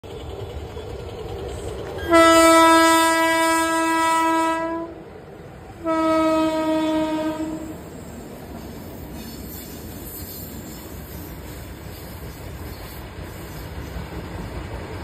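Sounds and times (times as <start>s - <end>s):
train rumble: 0.0s - 15.0s
locomotive horn blasts: 2.0s - 5.0s, 5.8s - 7.9s.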